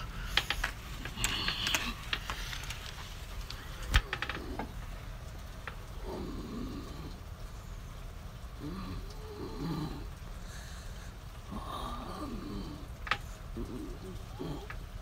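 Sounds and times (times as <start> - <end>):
low steady rumble: 0.0 - 15.0
light clicks and taps: 0.3 - 4.8.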